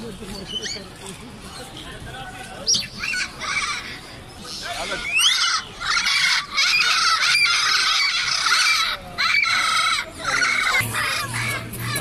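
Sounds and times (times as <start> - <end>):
high-pitched animal calls: 2.8 - 12.0.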